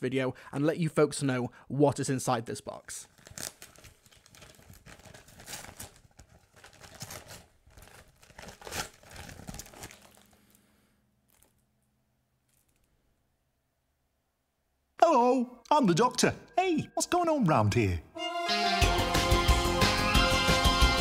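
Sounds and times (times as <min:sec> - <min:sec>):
wrapping paper tearing and crinkling: 0:03.0 - 0:10.6, 0:11.3 - 0:11.6.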